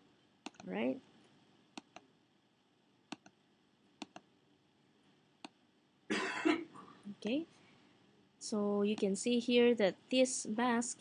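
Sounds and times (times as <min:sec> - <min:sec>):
computer mouse button clicking: 0:00.4 - 0:00.7, 0:03.1 - 0:03.3, 0:04.0 - 0:04.2.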